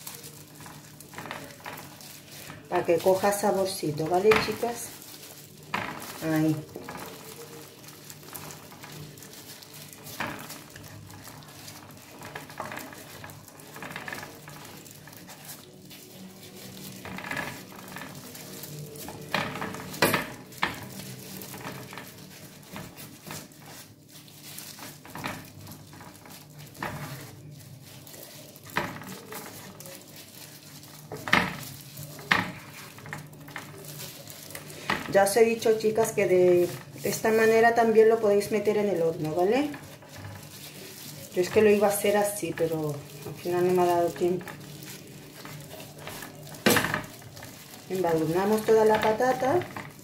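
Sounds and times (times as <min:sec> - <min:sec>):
soft squishing of marinade: 0:00.0 - 0:50.0.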